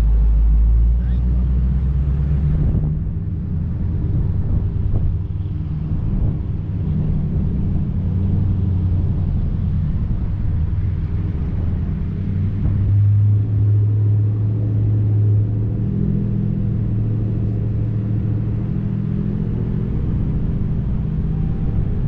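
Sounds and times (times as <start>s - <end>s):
car engine rumbling: 0.0s - 22.0s.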